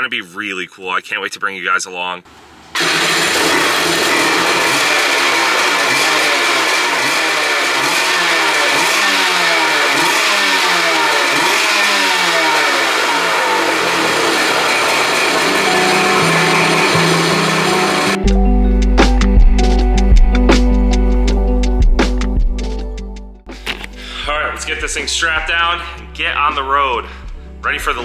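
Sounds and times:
jet ski engine revving: 2.3 - 18.3.

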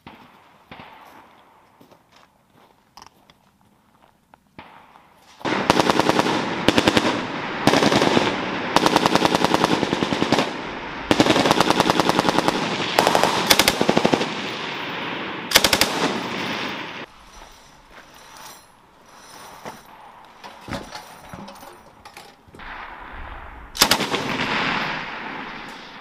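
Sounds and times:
gunfire echo: 0.0 - 1.7, 4.6 - 17.1, 22.6 - 26.0
machine gun firing bursts: 5.4 - 14.6, 15.5 - 16.8, 23.8 - 25.0.

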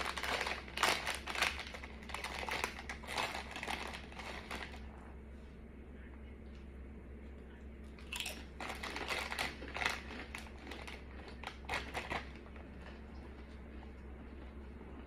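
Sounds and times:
crunching tortilla chip: 0.0 - 4.9, 8.1 - 13.6.

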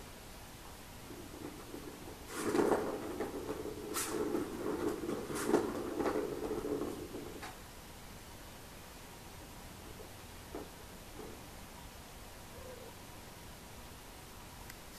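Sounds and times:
ball rolling on plastic track: 0.9 - 7.7, 9.4 - 11.6.

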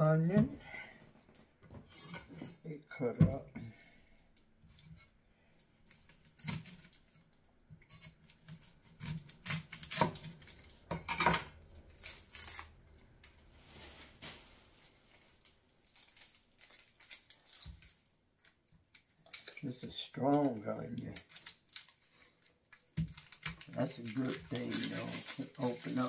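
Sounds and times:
knife scraping: 1.9 - 2.6, 5.8 - 7.2, 7.8 - 13.7.

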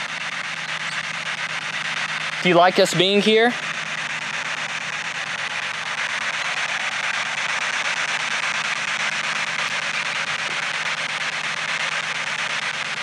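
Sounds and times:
radio static hiss: 0.0 - 13.0.

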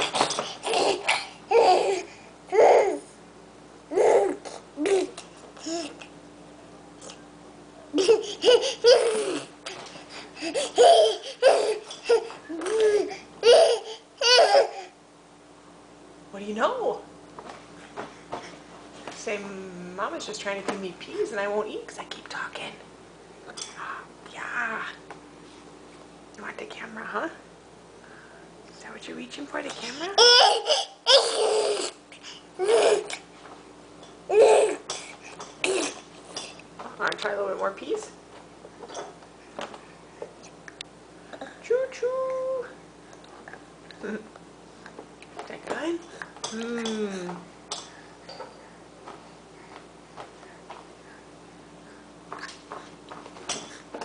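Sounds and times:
baby babbling and laughing: 0.6 - 3.1, 3.9 - 6.0, 7.9 - 9.5, 10.4 - 15.0, 30.2 - 32.0, 32.6 - 33.2, 34.3 - 34.8.

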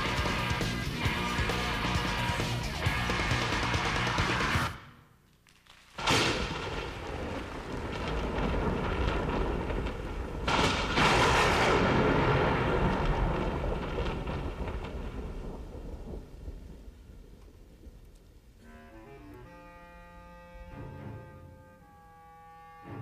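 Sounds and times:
thunder rumbling: 0.0 - 5.1, 6.0 - 18.9.

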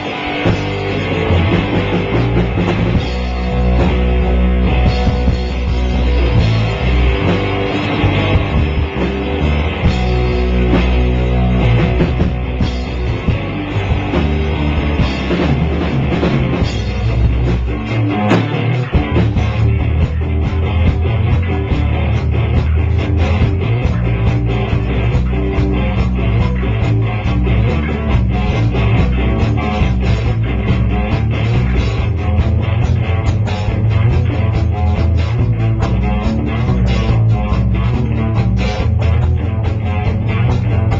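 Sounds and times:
loud rock music with drums: 0.0 - 40.9.

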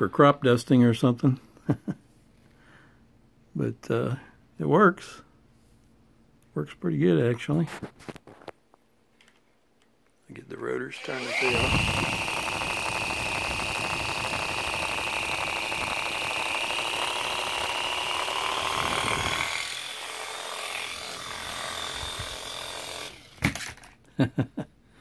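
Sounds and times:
toy helicopter rotors whining: 10.9 - 23.9.

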